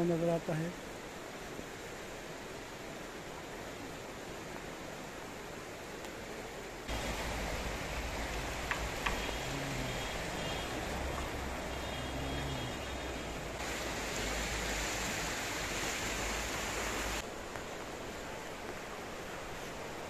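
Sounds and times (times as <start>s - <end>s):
river rushing over rocks: 6.9s - 18.0s.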